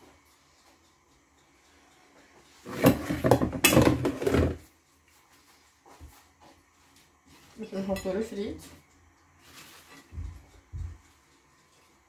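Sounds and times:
kitchen things rattling and clattering: 2.6 - 4.8.

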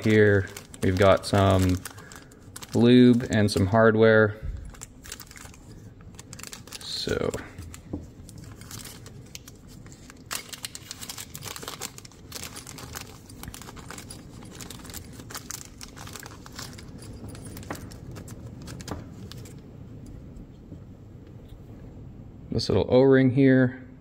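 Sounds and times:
plastic bag crinkling: 0.0 - 3.9, 4.5 - 19.6.

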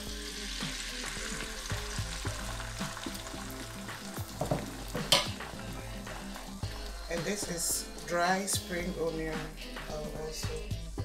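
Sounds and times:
egg sizzling in hot oil: 0.0 - 8.5.

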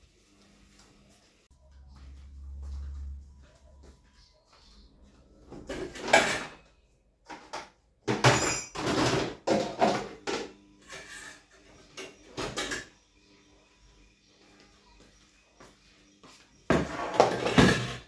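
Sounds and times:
pots and dishes clattering: 5.5 - 6.7, 7.3 - 13.0, 16.7 - 18.0.

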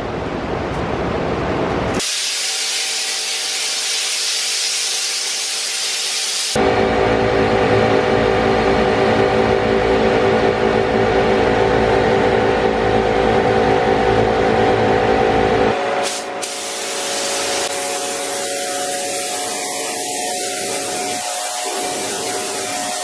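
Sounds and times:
paint spray gun hissing: 2.0 - 6.6, 16.0 - 23.0
motor drone with buzzing hum: 6.6 - 16.0.

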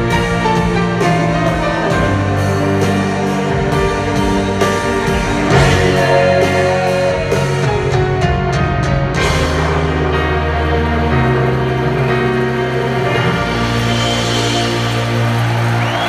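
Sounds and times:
steady drum beat: 0.0 - 11.0
live rock band with strings: 0.0 - 16.0.

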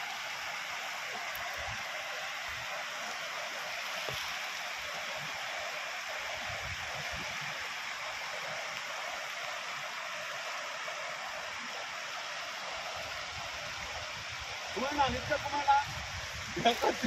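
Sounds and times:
floodwater rushing: 0.0 - 17.0.

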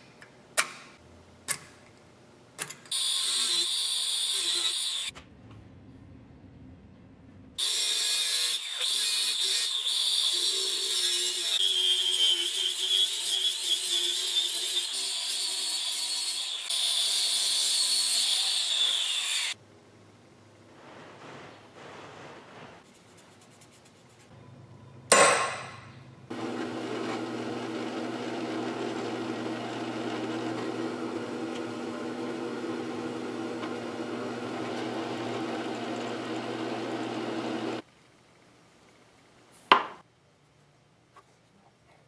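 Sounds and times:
drill press cutting metal: 26.3 - 37.8.

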